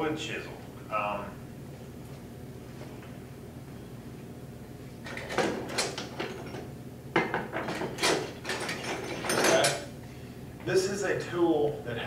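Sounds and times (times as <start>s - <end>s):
hand tools clattering: 7.3s - 9.9s.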